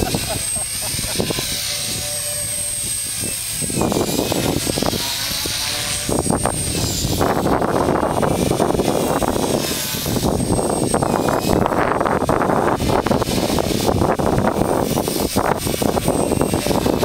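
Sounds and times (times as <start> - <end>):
rc helicopter motor whine: 0.0 - 17.0.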